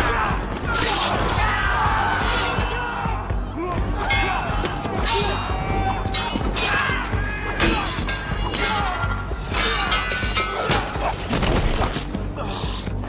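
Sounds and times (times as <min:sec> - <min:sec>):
dramatic film score: 0:00.0 - 0:13.0
steel weapons clashing: 0:04.1 - 0:11.3.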